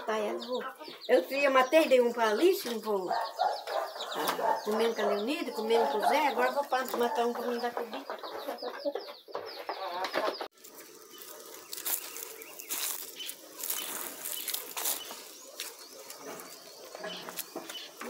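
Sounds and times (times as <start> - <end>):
hens clucking: 0.0 - 18.0
plastic buckets rustling: 10.2 - 18.0
footsteps on dry ground and twigs: 10.5 - 18.0.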